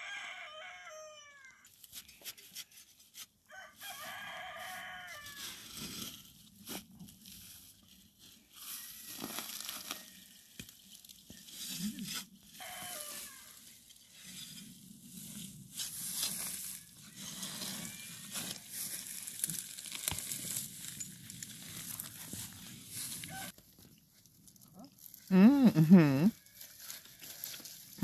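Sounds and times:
digging tool crunching dry soil: 1.7 - 23.6.

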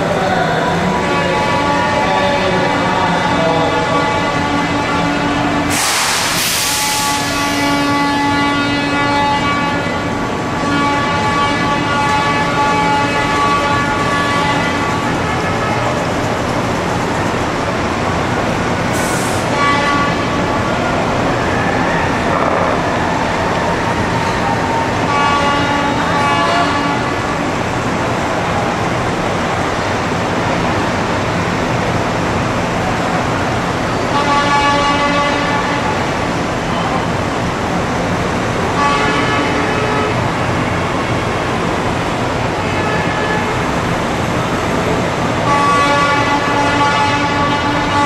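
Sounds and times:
truck horn blasts: 3.5 - 16.0, 19.0 - 20.7, 23.9 - 27.6, 34.1 - 36.1, 38.7 - 40.8, 42.5 - 43.8, 45.4 - 48.0.

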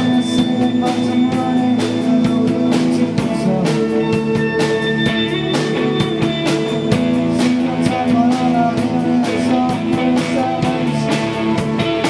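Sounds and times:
bass guitar: 0.0 - 12.0
drum kit beat: 0.0 - 12.0
electric guitars: 0.0 - 12.0
wavering lead guitar line: 0.0 - 12.0.

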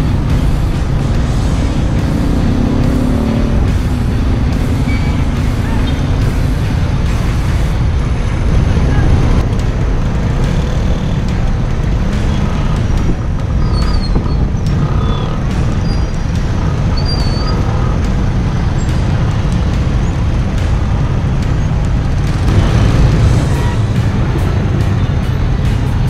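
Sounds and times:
motorcycle engines running: 0.0 - 26.0
traffic rumble: 0.0 - 26.0.

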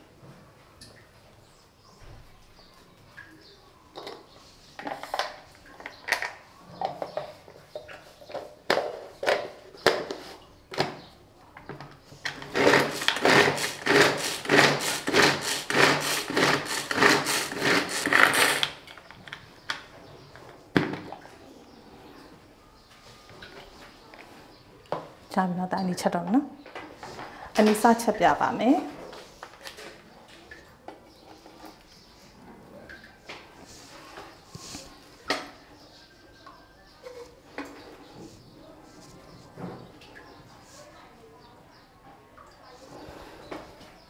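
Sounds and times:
string chopper chopping onion: 12.5 - 18.7.

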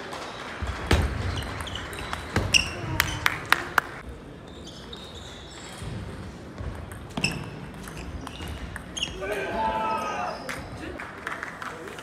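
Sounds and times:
table tennis rally: 0.0 - 12.0
table tennis ball bouncing: 6.6 - 9.2.

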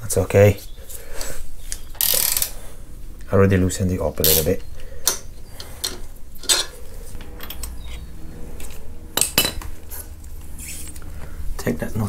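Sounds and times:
metal tools clinking: 4.3 - 8.1.

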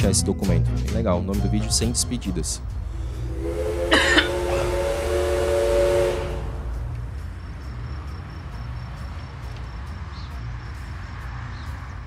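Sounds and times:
low road rumble: 0.0 - 12.0
horn chord: 1.6 - 7.1.

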